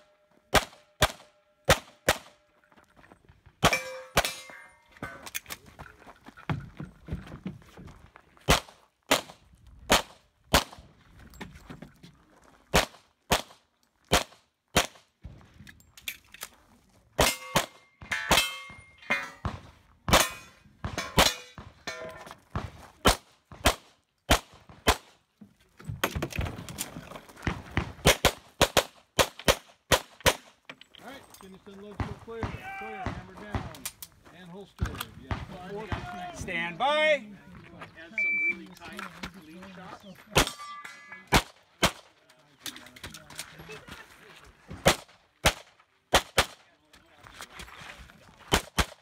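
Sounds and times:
pistol shots: 0.5s - 2.4s, 44.8s - 46.6s
steel targets ringing: 3.7s - 5.3s, 17.3s - 19.5s, 40.4s - 41.4s.

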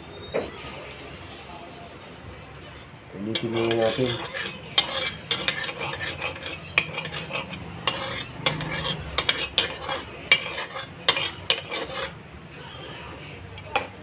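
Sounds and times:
metal spatula scraping a wok: 3.2s - 12.2s
oil sizzling: 3.3s - 12.2s.

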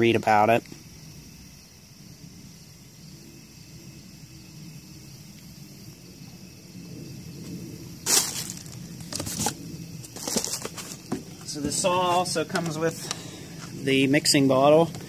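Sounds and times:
faint outdoor background: 0.0s - 15.0s
packaging rustling: 8.0s - 11.5s.

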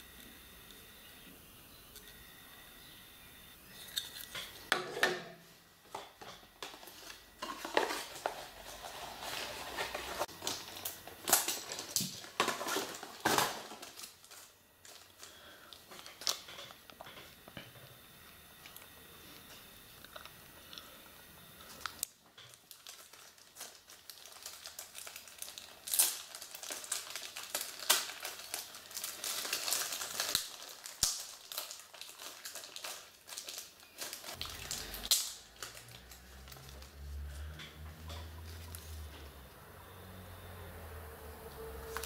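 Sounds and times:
plastic packaging crinkling: 5.9s - 17.3s, 21.6s - 39.2s, 41.5s - 42.0s.

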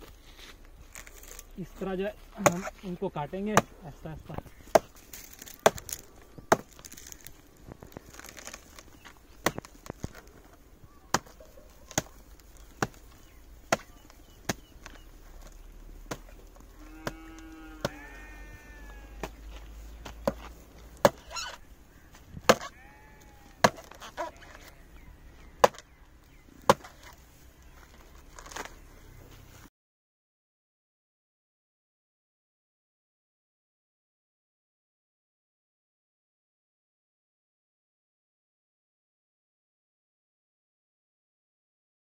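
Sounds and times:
axe chopping wood: 2.4s - 2.8s, 3.5s - 7.2s, 8.0s - 17.2s, 17.8s - 18.0s, 19.2s - 21.6s, 22.3s - 22.8s, 23.5s - 24.7s, 25.6s - 26.0s, 26.6s - 27.2s
farm animal calling: 10.2s - 29.4s.

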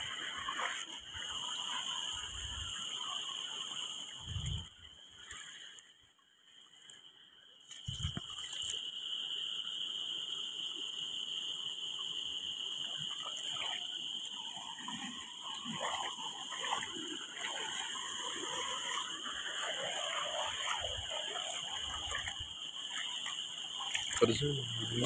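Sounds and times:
frogs croaking: 0.0s - 25.0s.

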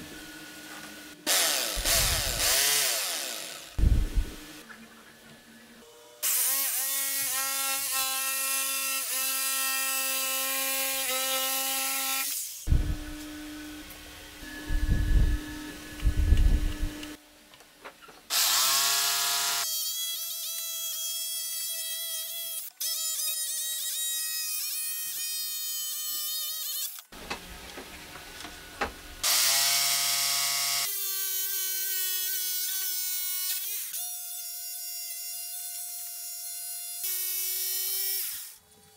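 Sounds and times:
jigsaw motor whine: 1.2s - 3.8s
low thumps: 3.8s - 4.4s.

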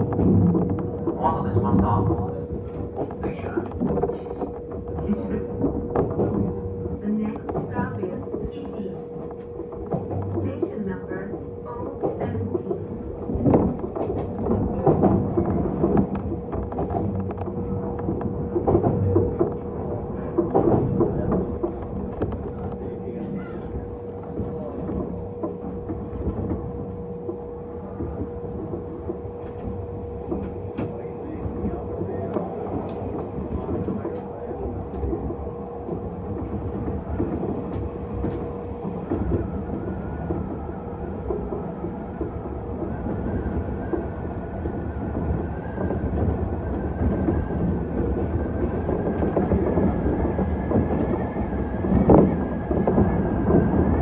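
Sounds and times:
train rumble and hum: 0.0s - 54.0s
wheels clacking over rail joints: 0.0s - 54.0s.

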